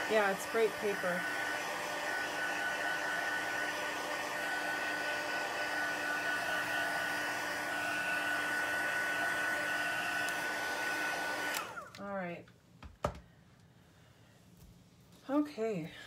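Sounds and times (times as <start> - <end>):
heat tool blowing hot air: 0.0 - 11.9.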